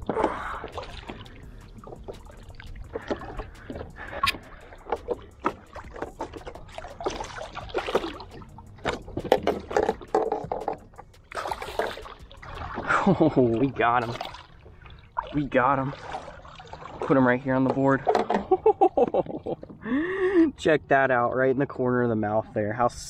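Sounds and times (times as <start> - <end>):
fish splashing at water surface: 0.0 - 13.3
water sloshing against hull: 0.0 - 23.0.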